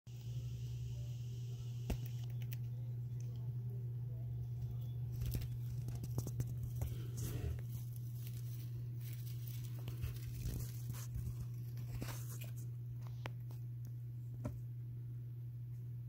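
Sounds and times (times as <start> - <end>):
steady low hum: 0.1 - 16.0
hamster scrabbling in wood shavings: 4.4 - 13.6.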